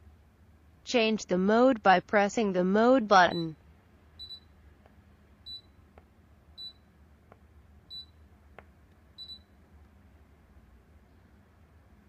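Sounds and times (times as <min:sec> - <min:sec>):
air conditioner short high beeps: 0:03.2 - 0:03.6, 0:04.2 - 0:04.6, 0:05.4 - 0:05.8, 0:06.6 - 0:06.9, 0:07.9 - 0:08.2, 0:09.1 - 0:09.6.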